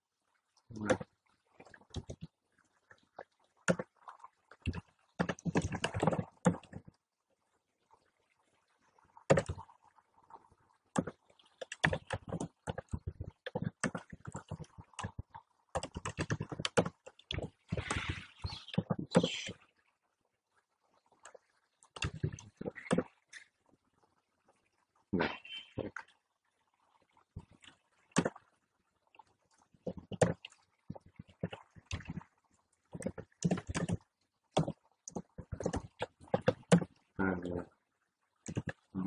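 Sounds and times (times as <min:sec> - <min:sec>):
typing on a computer keyboard: 0:11.0 - 0:17.2.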